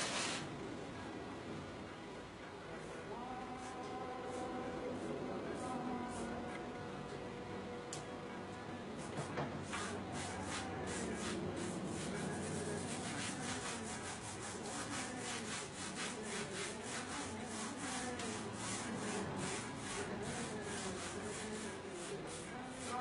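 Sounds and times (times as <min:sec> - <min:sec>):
paintbrush strokes on canvas: 0:09.0 - 0:23.0.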